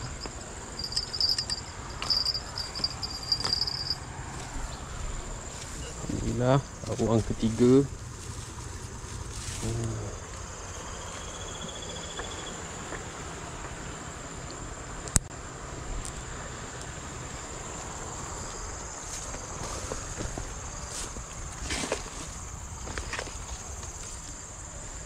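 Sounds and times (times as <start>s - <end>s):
insects trilling: 0.0s - 25.0s
rustling and handling noise: 0.1s - 10.6s.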